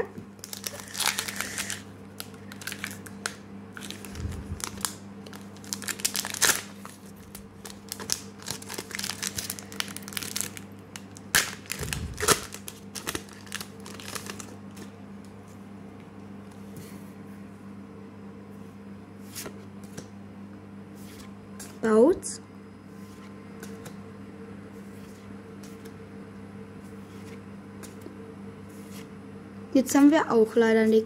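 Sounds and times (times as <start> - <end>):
foil wrapper crinkling and tearing: 0.4 - 14.9.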